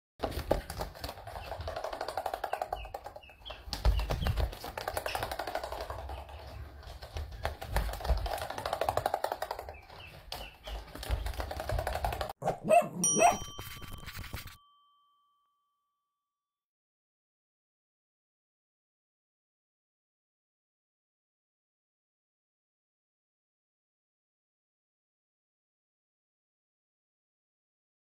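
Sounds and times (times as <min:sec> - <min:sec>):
duckling feet pattering on wood: 0:00.2 - 0:12.4
ringing ding: 0:13.0 - 0:16.2.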